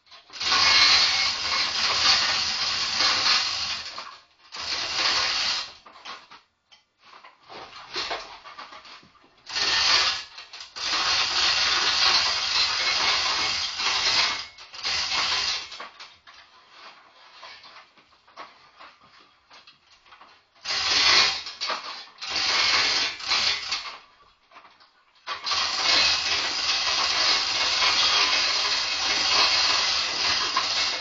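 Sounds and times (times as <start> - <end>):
chain hoist rattling: 0.0 - 5.8, 7.9 - 16.1, 20.6 - 24.0, 25.2 - 31.0.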